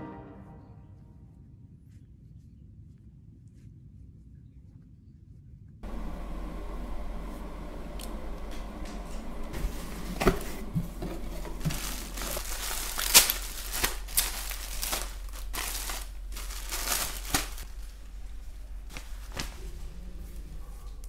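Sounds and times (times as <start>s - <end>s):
plastic bags crinkling: 9.2s - 21.0s.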